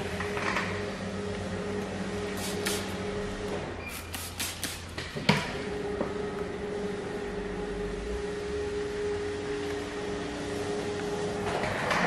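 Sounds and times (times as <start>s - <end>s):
steady background hum: 0.0s - 12.0s
spray bottle squirting: 2.4s - 3.0s, 3.9s - 5.0s.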